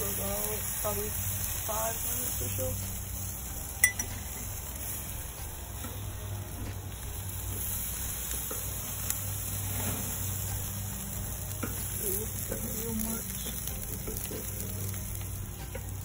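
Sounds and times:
patties sizzling on a grill: 0:00.0 - 0:16.0.

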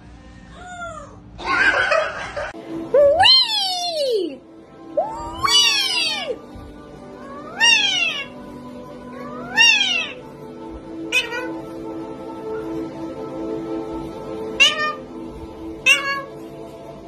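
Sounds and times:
parrot calling: 0:05.0 - 0:06.4, 0:07.2 - 0:08.4, 0:09.1 - 0:10.3, 0:11.0 - 0:11.8, 0:14.4 - 0:15.2, 0:15.8 - 0:16.4.

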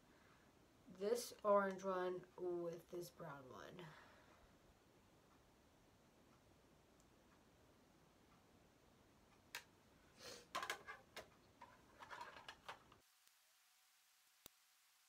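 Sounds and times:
faint clicks and taps: 0:01.3 - 0:02.4, 0:06.2 - 0:07.6, 0:09.2 - 0:09.8, 0:10.5 - 0:13.4.

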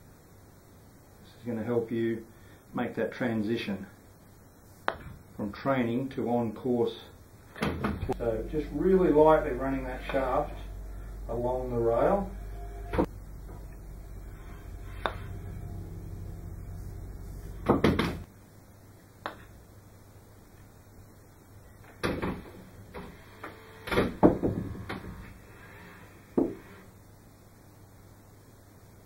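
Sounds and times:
low hum: 0:07.2 - 0:18.3.

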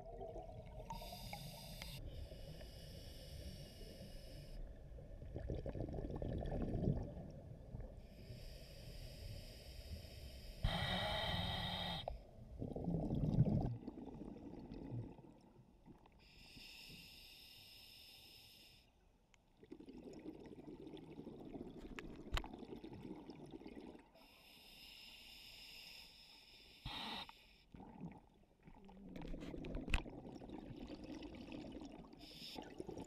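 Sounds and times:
exhaled air bubbling: 0:00.0 - 0:02.6, 0:04.6 - 0:08.3, 0:10.6 - 0:16.2, 0:19.6 - 0:24.2, 0:27.7 - 0:33.0
regulator inhalation hiss: 0:01.0 - 0:04.6, 0:08.2 - 0:12.2, 0:16.4 - 0:18.9, 0:24.3 - 0:27.6.

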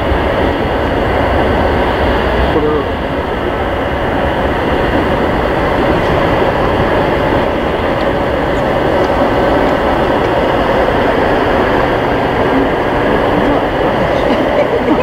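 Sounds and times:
jet engines running: 0:00.0 - 0:15.0.

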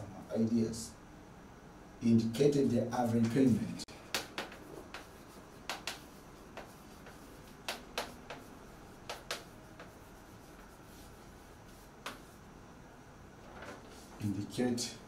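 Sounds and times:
chalk tapping on blackboard: 0:03.3 - 0:12.4.

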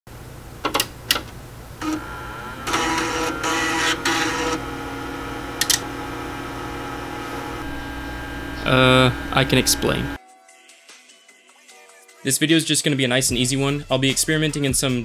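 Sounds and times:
mechanical noise: 0:00.6 - 0:10.2
oscilloscope hum and tone: 0:01.8 - 0:10.2
power button click: 0:05.6 - 0:05.9.

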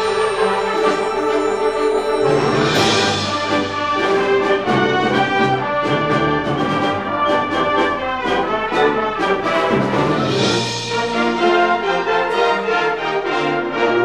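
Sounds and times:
high shimmer: 0:00.0 - 0:05.0
concert band playing: 0:00.0 - 0:11.8
brass chords: 0:00.0 - 0:14.0.

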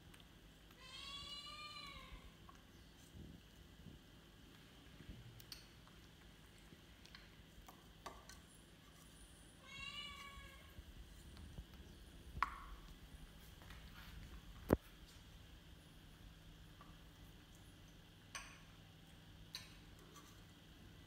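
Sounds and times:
faint clicks and taps: 0:02.4 - 0:09.2.

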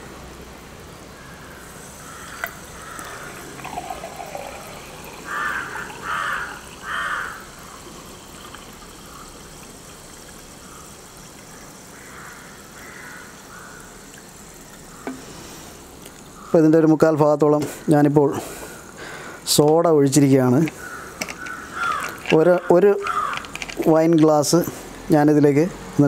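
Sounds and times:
soda water pouring into glass: 0:01.9 - 0:15.2.

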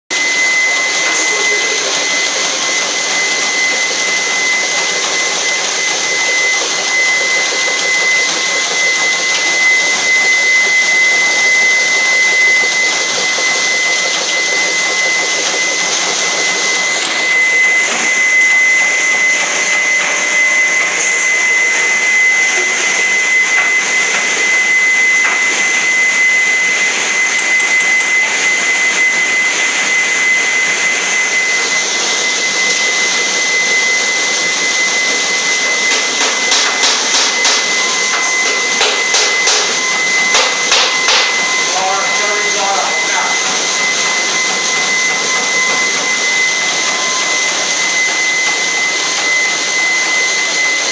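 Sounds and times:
drilling machine whine: 0:00.1 - 0:50.9.

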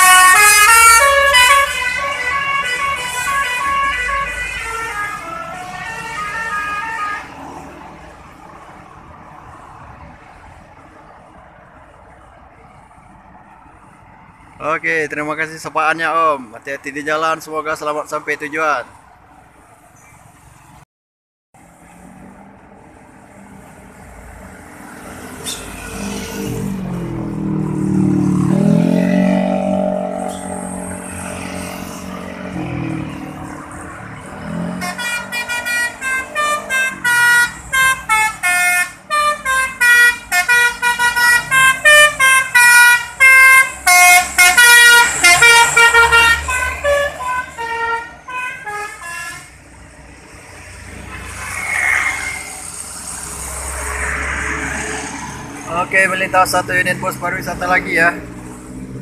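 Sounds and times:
bus horn playing fast melody: 0:00.0 - 0:07.4, 0:34.7 - 0:49.6
heavy vehicle engine passing: 0:21.6 - 0:38.4, 0:43.2 - 0:59.0.

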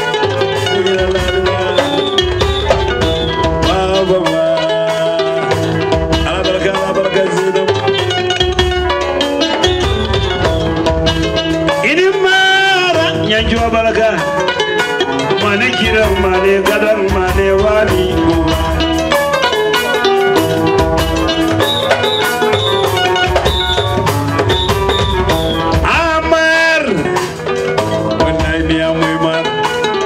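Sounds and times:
drum kit steady beat: 0:00.0 - 0:30.0
plucked string lines: 0:00.0 - 0:30.0
person singing or calling out: 0:00.3 - 0:08.1, 0:15.4 - 0:19.2.

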